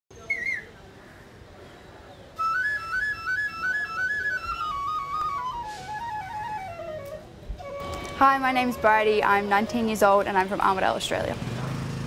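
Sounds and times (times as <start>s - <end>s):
flute melody: 2.4s - 10.2s.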